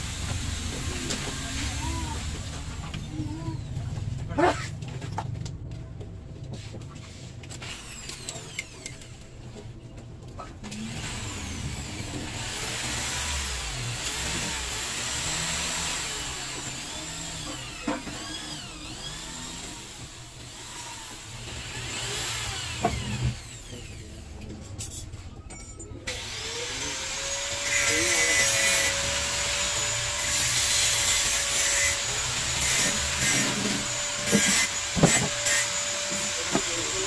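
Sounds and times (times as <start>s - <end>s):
vehicle engine rumbling: 0.0s - 7.6s.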